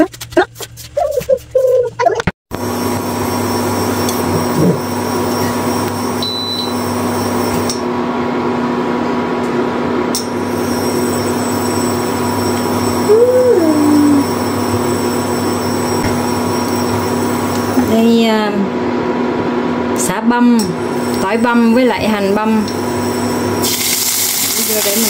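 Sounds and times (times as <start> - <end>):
appliance motor humming: 2.6 - 7.8.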